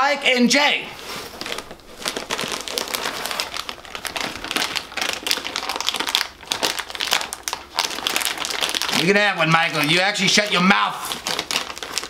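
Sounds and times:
paper rustling: 0:01.0 - 0:06.7
plastic wrapper crinkling: 0:01.0 - 0:12.0.

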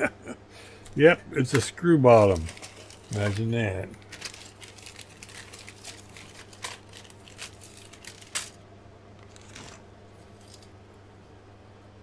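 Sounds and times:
plastic bag crinkling: 0:01.5 - 0:08.6, 0:09.2 - 0:10.8.

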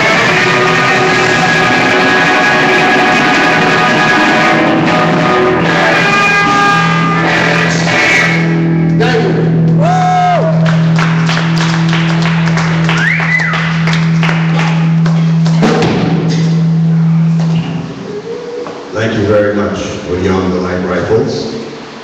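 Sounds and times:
live rock band: 0:00.0 - 0:18.9
high sliding guitar note: 0:00.0 - 0:20.0
cymbal and drum hits: 0:15.6 - 0:18.1.

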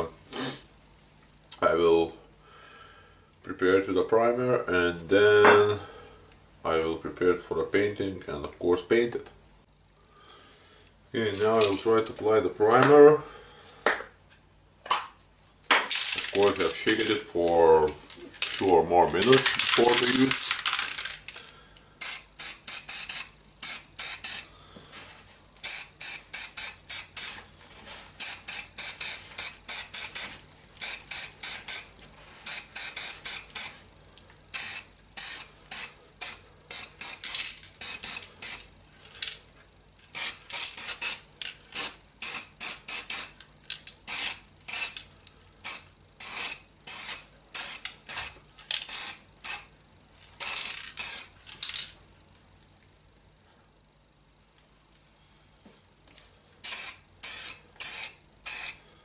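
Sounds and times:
aerosol can spraying in bursts: 0:22.0 - 0:24.5, 0:25.6 - 0:27.4, 0:28.2 - 0:33.8, 0:34.5 - 0:38.6, 0:40.1 - 0:41.2, 0:41.8 - 0:43.4, 0:44.1 - 0:45.0, 0:45.6 - 0:49.7, 0:56.6 - 0:58.8.

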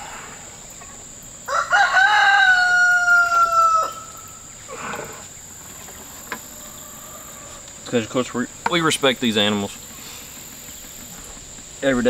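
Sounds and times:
high insect drone: 0:00.0 - 0:12.0
rooster crowing: 0:01.4 - 0:05.2, 0:06.4 - 0:07.7.

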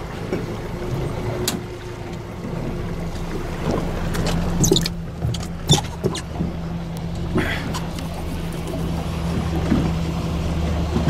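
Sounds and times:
boat engine idling: 0:00.0 - 0:11.0.

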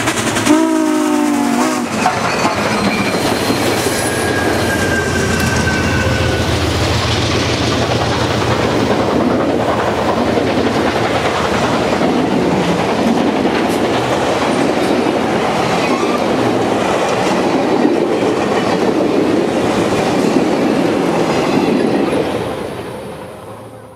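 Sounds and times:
train wheels rumbling on rail: 0:00.0 - 0:23.9.

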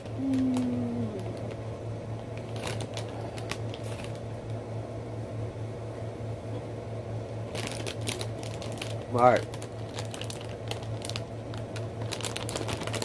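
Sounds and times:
plastic bag crinkling: 0:00.0 - 0:01.6, 0:02.2 - 0:04.3, 0:07.5 - 0:13.0
low room hum: 0:00.0 - 0:13.0.

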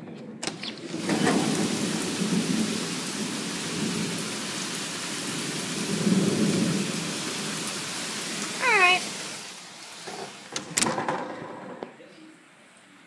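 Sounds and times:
heavy rain pouring: 0:00.5 - 0:11.3
rolling thunder: 0:00.8 - 0:09.3.

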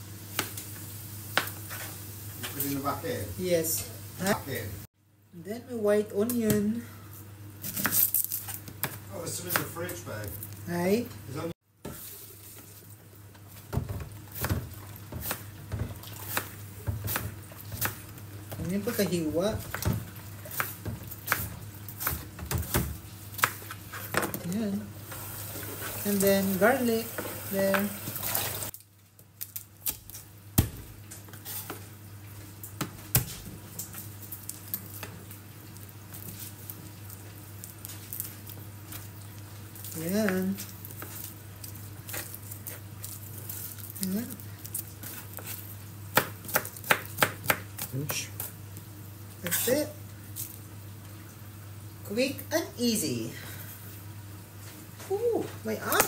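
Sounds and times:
faint sizzle of frying: 0:00.0 - 0:56.0
knife chopping onion on board: 0:13.8 - 0:24.4, 0:45.0 - 0:48.3.

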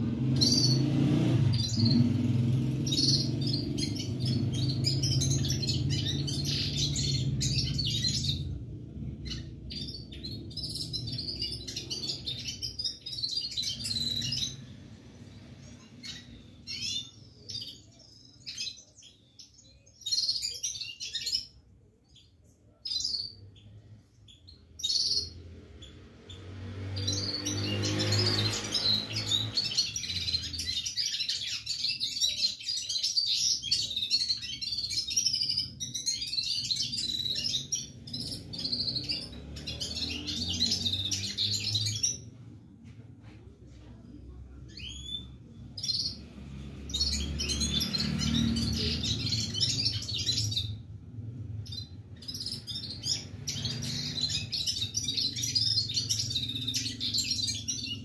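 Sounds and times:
bird twittering song: 0:00.0 - 0:42.5, 0:44.6 - 0:58.0.

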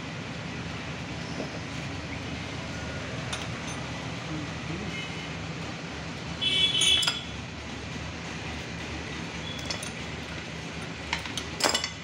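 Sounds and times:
steady low hum: 0:00.0 - 0:12.0
metal clutch parts clinking: 0:03.2 - 0:04.0, 0:06.7 - 0:07.4, 0:09.4 - 0:12.0.

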